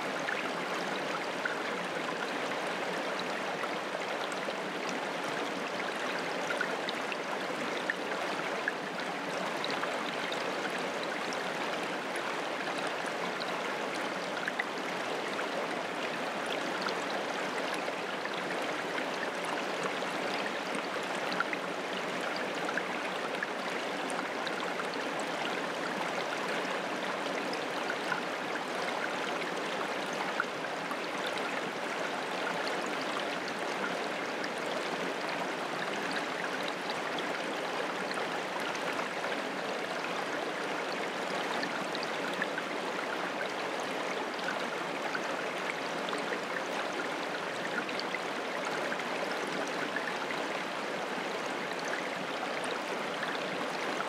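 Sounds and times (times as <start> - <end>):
creek trickling over rocks: 0.0 - 54.0.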